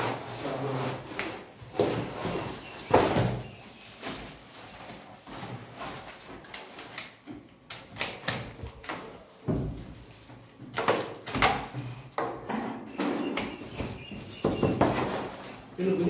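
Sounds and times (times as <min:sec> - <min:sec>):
plastic wrap rustling: 0:00.0 - 0:07.2, 0:13.5 - 0:16.0.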